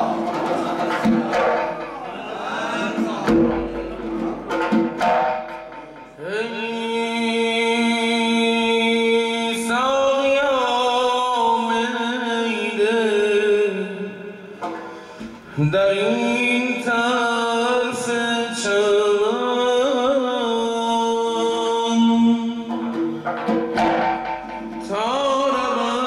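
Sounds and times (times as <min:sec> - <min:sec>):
goblet drum struck by hand: 0:00.0 - 0:06.3, 0:22.7 - 0:26.0
man chanting: 0:06.1 - 0:14.5, 0:15.5 - 0:23.1, 0:24.7 - 0:26.0.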